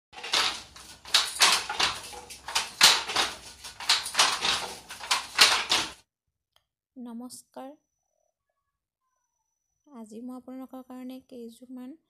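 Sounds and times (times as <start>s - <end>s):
wooden handloom clattering: 0.1s - 6.0s.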